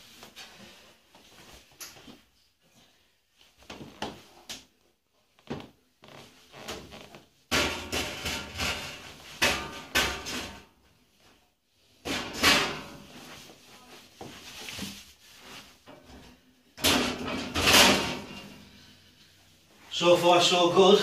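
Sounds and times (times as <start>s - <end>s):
metal rack frame clattering: 16.8s - 18.6s.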